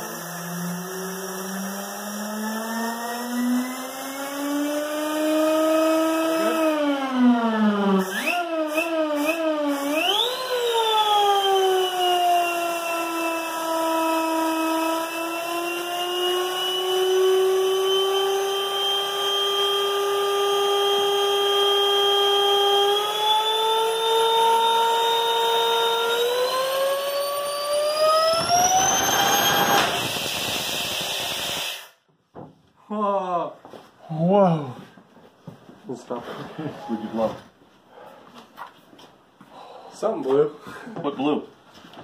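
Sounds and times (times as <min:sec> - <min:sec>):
air turbine high whine: 0:25.5 - 0:32.1.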